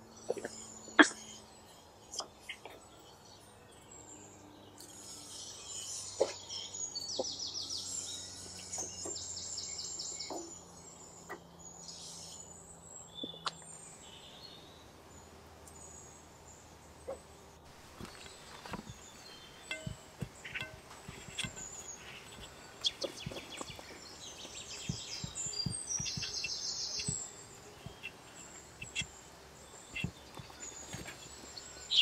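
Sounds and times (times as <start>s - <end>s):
birds chirping: 0.0s - 32.0s
low background hum: 0.0s - 32.0s
knocks and clinks at oven: 19.6s - 21.6s.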